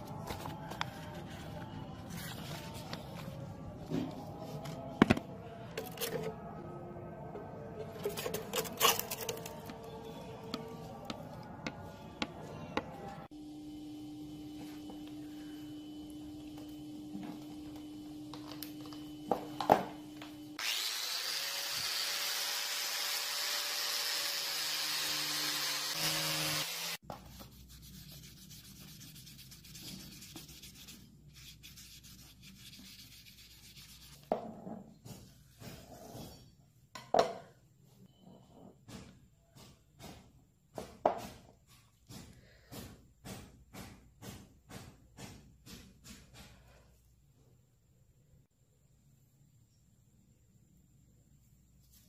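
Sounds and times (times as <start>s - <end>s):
cloth rubbing on knife handle: 27.1s - 34.3s.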